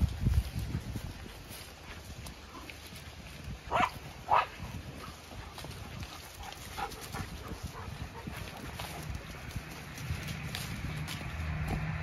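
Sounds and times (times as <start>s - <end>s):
dog barking: 3.7s - 4.6s.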